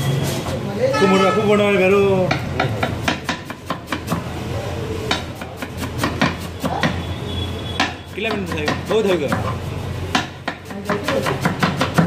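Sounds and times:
knife chopping on wooden board: 2.2 - 4.4, 5.0 - 7.1, 7.7 - 12.0.

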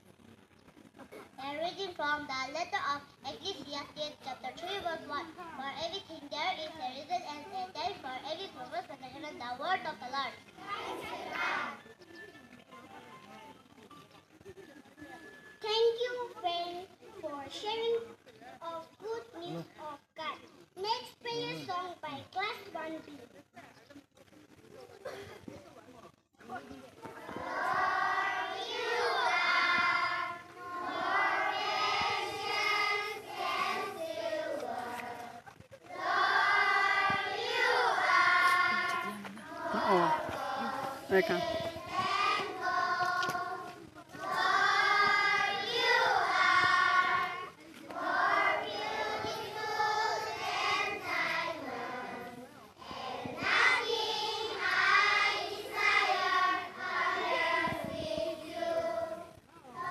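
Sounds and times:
children's choir singing unaccompanied: 9.2 - 12.0, 27.0 - 59.9.

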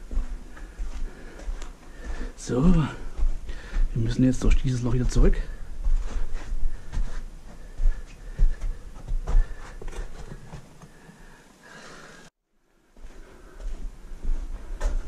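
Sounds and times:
scuffs and knocks of climbing: 0.1 - 11.2.

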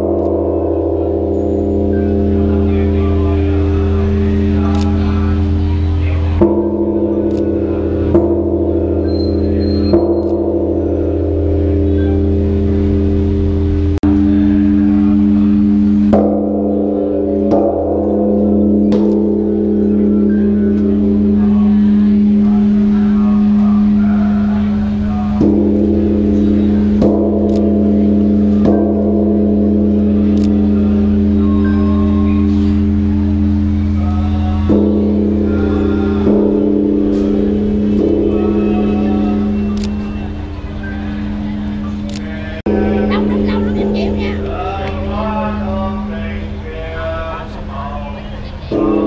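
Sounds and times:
large bronze bell strikes: 0.0 - 46.6, 48.7 - 49.0.

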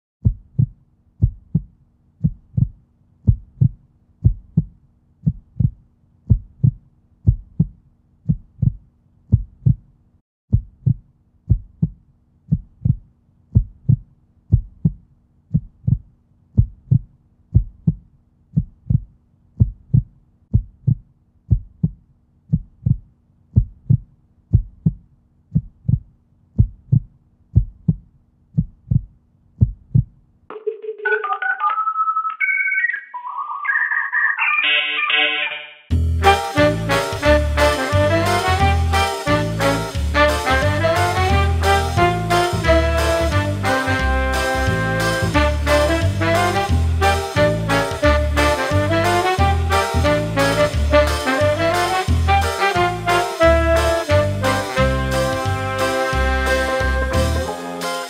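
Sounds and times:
heartbeat thumps: 0.2 - 9.9, 10.5 - 30.2.

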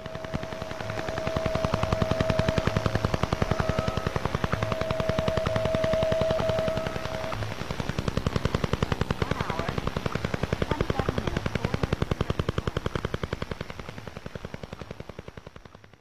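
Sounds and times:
steady radio whistle: 0.0 - 8.0
rapid radio tapping pulses: 0.0 - 16.0.

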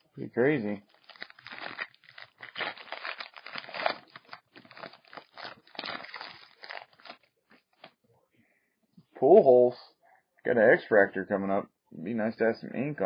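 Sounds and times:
card pack wrapper crinkling: 0.6 - 7.9.

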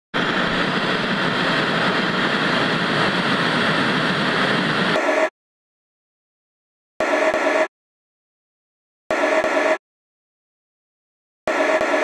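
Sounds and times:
rushing static noise: 0.2 - 5.3.

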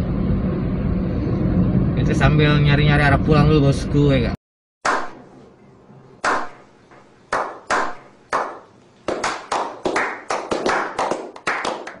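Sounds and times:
people clapping: 7.3 - 12.0.

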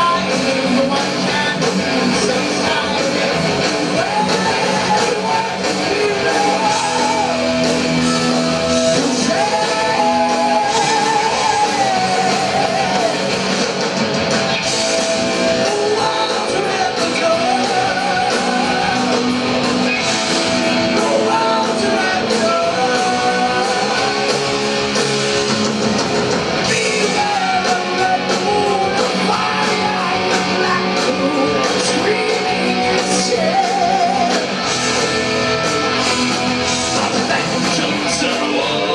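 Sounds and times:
lead singer's voice: 0.0 - 13.8, 14.8 - 25.0, 26.6 - 35.3, 36.6 - 38.9
bass guitar: 0.0 - 38.9
drums: 0.0 - 38.9
electric guitars: 0.0 - 38.9.

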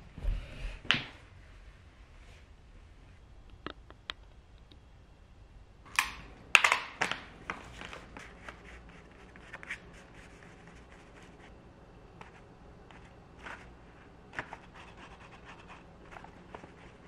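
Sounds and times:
paper crinkling: 14.4 - 17.0
paintbrush scratching on paper: 14.5 - 17.0.

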